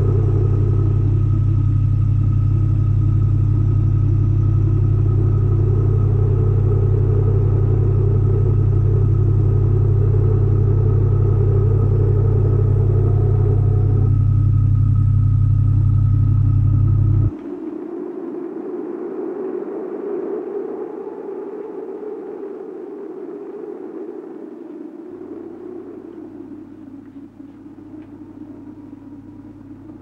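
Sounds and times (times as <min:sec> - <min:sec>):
low-pitched drone with high tone: 0:00.0 - 0:30.0.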